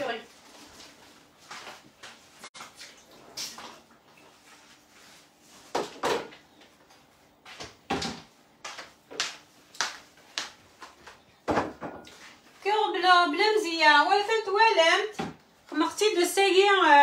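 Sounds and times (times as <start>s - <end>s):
kitchen knocks and bumps: 11.4s - 12.1s.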